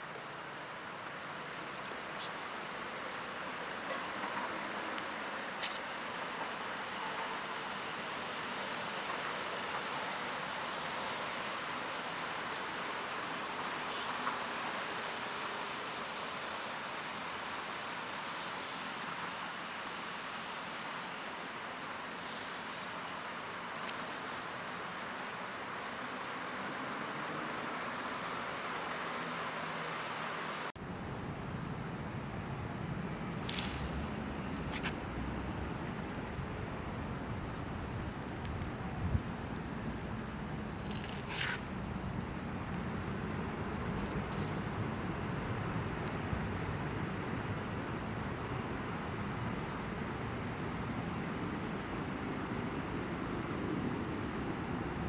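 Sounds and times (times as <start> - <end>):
insect chirping in quick pulse: 0.0 - 30.7
crickets calling: 0.0 - 45.9
faint steady hiss: 0.0 - 55.0.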